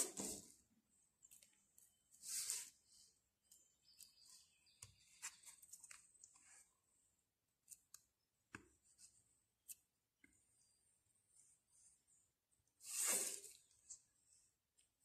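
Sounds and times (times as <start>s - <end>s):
fork scraping wet paint: 12.8s - 13.7s.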